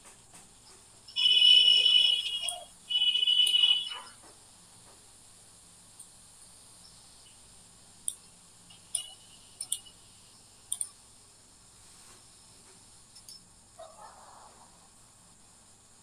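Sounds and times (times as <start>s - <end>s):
low hiss: 0.0s - 16.0s
shrill whistling tone: 1.2s - 4.2s
computer mouse clicks: 10.7s - 11.0s.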